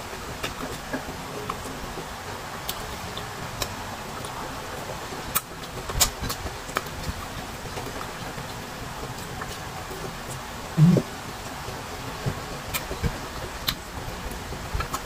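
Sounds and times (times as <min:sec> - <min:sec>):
steady hiss: 0:00.0 - 0:15.0
mouth clicks: 0:10.8 - 0:11.1.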